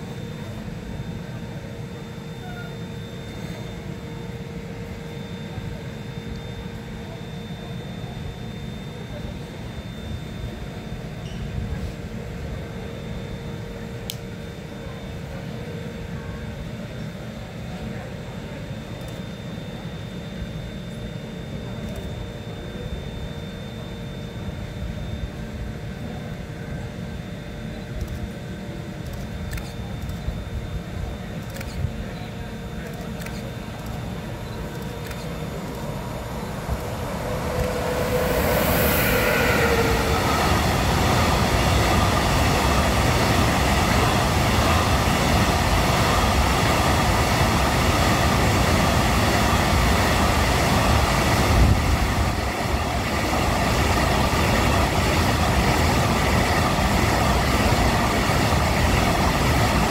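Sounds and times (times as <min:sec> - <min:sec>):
freight train rumble: 0:00.0 - 0:06.0, 0:27.6 - 0:59.9
thin steady tones: 0:28.7 - 0:51.4.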